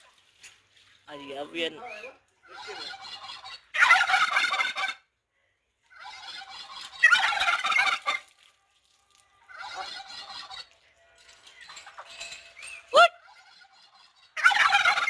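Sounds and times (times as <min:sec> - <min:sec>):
turkeys gobbling: 0:01.8 - 0:05.1, 0:05.9 - 0:08.4, 0:09.5 - 0:10.8, 0:11.6 - 0:15.0.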